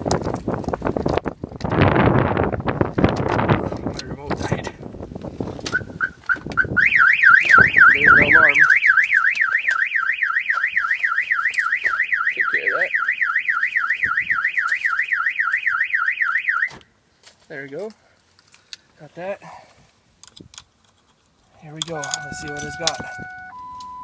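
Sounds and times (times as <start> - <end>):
car alarm short beeps: 5.8 - 16.8, 21.9 - 24.0
car alarm warbling siren: 5.8 - 16.8, 21.9 - 24.0.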